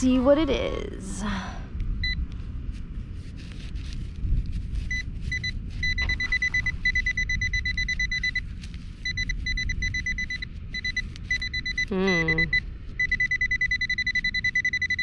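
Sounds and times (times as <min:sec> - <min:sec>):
low rumble: 0:00.0 - 0:13.6
metal detector beeping: 0:04.8 - 0:15.0.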